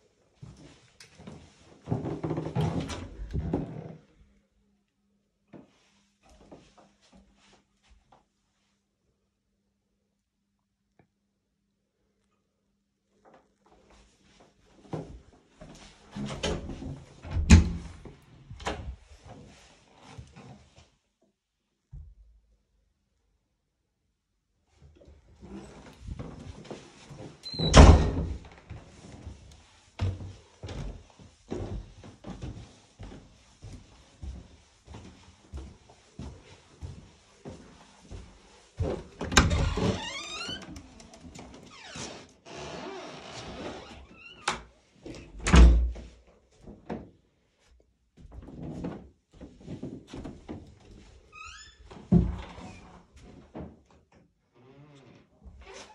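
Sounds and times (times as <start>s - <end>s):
door shutting with a thud: 16.3s - 18.0s, 27.6s - 28.4s, 45.4s - 46.0s
door squeak: 27.4s - 28.2s, 39.4s - 41.0s, 41.7s - 44.6s
footsteps on carpeted stairs: 28.6s - 42.0s.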